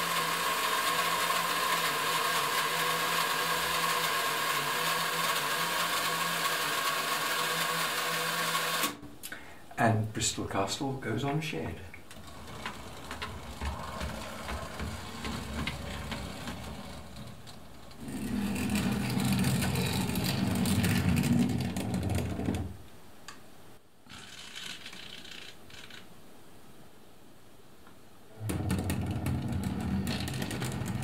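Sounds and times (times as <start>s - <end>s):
model trains whirring and clattering: 0.0s - 8.9s, 12.1s - 22.2s.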